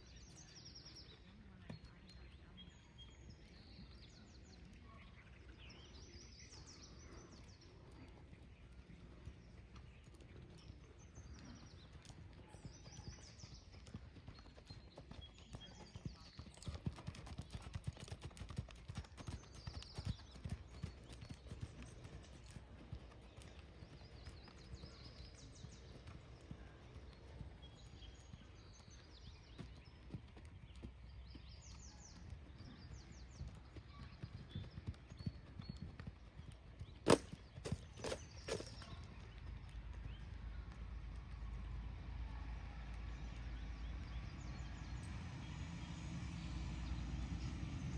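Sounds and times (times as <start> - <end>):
horse hoofbeats on sand: 9.0 - 42.3.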